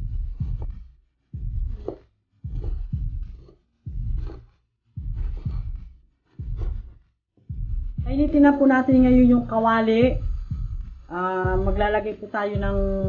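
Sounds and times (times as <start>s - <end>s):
knife chopping on wooden board: 0.3s - 0.8s, 1.4s - 6.9s.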